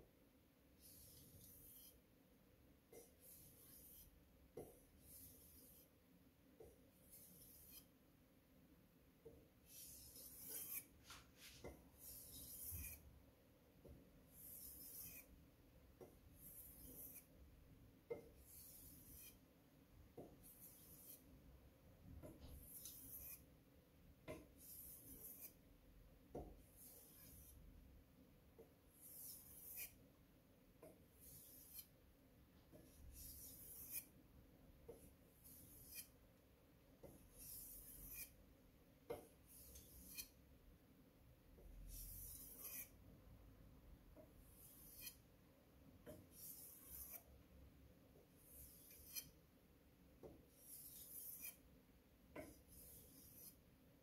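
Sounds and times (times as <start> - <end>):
knife scraping on whetstone: 0.8 - 2.0, 2.9 - 5.9, 7.0 - 7.9, 9.7 - 13.0, 14.3 - 15.3, 16.4 - 17.3, 18.4 - 19.4, 22.4 - 23.4, 24.6 - 25.6, 26.8 - 27.6, 29.0 - 30.0, 31.2 - 31.9, 32.8 - 34.1, 35.4 - 36.2, 37.3 - 38.4, 39.5 - 40.4, 41.9 - 43.0, 44.5 - 45.2, 46.1 - 47.3, 48.4 - 49.4, 50.5 - 51.6, 52.4 - 53.6.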